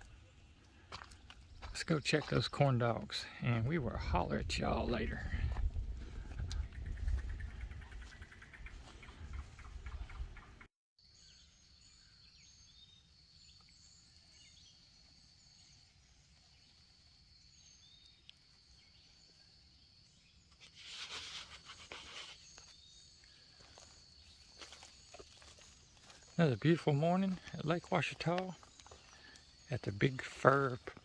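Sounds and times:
bird calls: 0:06.1 - 0:31.0
brief rustle: 0:20.5 - 0:22.7.

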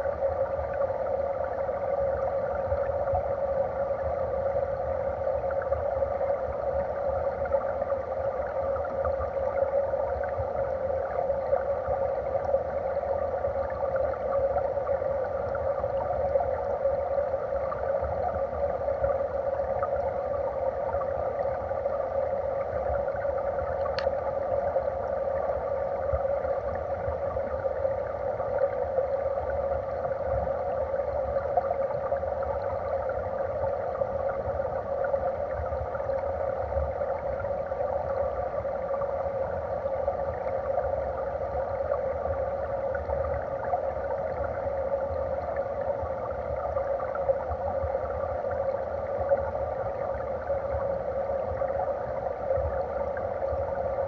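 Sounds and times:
stream current heard underwater: 0:00.0 - 0:54.0
faint tick: 0:10.1 - 0:12.6, 0:22.8 - 0:24.4.

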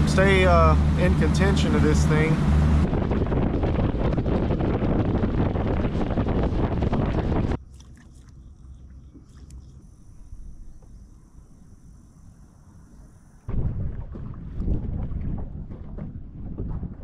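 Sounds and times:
wind rushing over microphone: 0:00.0 - 0:07.6, 0:13.5 - 0:17.0
thin high whine: 0:08.3 - 0:13.5.

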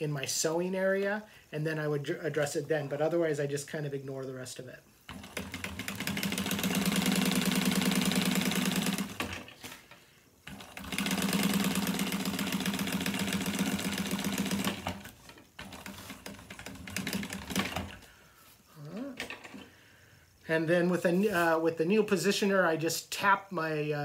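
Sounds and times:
sewing machine clicks: 0:05.1 - 0:09.6, 0:10.5 - 0:18.0
sewing machine stitching: 0:05.1 - 0:09.8, 0:10.4 - 0:18.0.

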